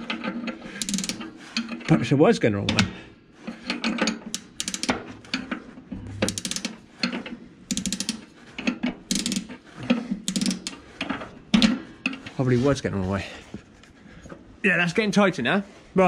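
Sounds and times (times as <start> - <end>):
spanner ratcheting clicks: 0.7 - 1.3, 3.7 - 5.4, 6.2 - 6.8, 7.7 - 9.6, 10.2 - 10.8.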